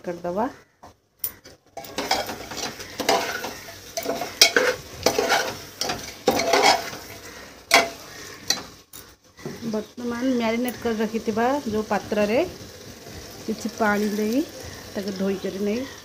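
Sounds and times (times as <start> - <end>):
metal spoon scraping cooker: 1.8 - 8.7
meat sizzling: 1.8 - 16.0.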